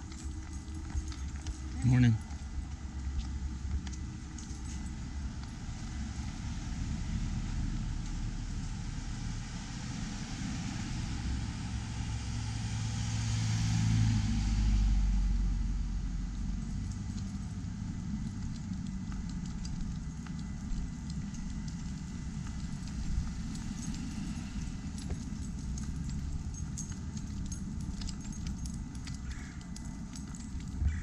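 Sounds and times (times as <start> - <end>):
cars driving past: 5.6 - 19.0.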